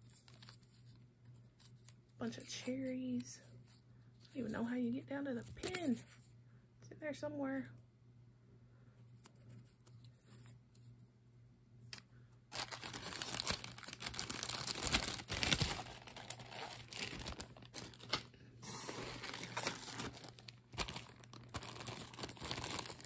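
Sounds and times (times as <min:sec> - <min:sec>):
plastic bag crinkling: 0:12.5 - 0:23.0.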